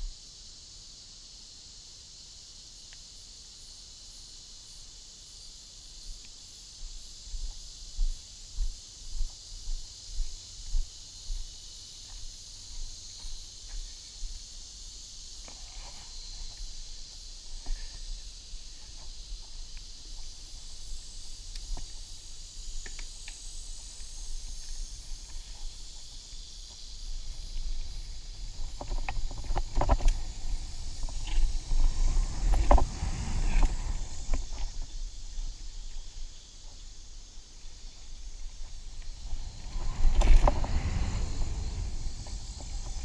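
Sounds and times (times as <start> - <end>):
insects buzzing: 0.0 - 43.0
bike tyres rumbling on dirt: 27.6 - 35.0, 38.5 - 43.0.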